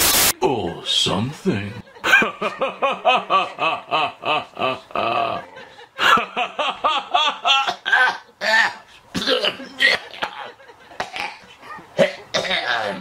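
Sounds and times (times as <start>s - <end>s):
person coughing and gasping: 7.6s - 11.4s, 12.0s - 13.0s.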